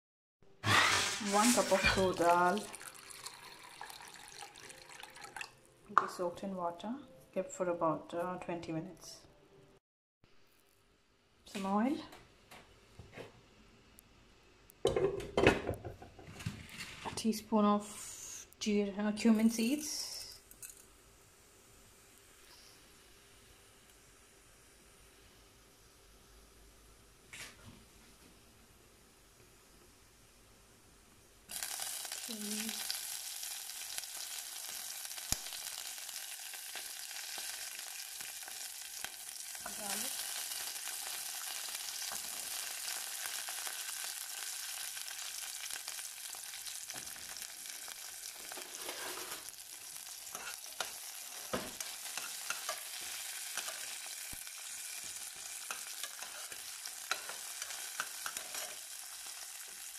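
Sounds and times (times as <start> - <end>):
steel spoon stirring in a pan: 0.6 - 2.3, 50.2 - 59.8
food sizzling in hot oil: 0.6 - 5.5, 19.2 - 26.9, 30.2 - 59.9.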